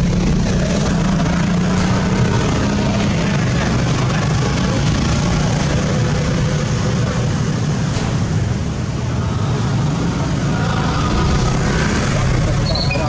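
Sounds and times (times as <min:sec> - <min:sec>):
crowd voices: 0:00.0 - 0:13.0
vehicle engines running: 0:00.0 - 0:13.0.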